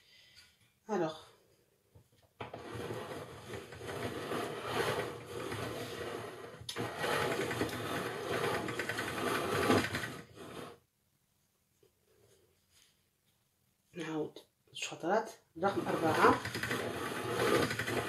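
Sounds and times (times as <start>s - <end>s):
pasta machine rollers whirring: 2.4s - 10.8s, 15.7s - 18.0s.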